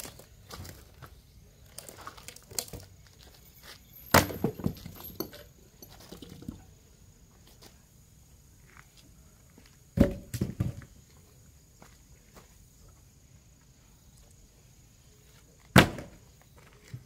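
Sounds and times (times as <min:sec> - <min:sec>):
axe chopping log: 0:15.7 - 0:16.2.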